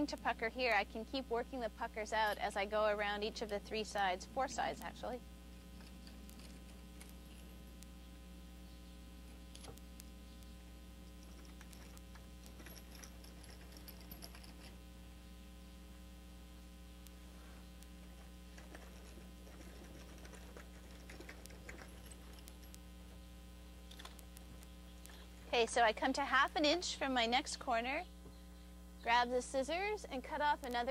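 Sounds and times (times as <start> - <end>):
steady electrical hum: 0.0 - 30.9
roller clicking and scraping: 18.5 - 22.6.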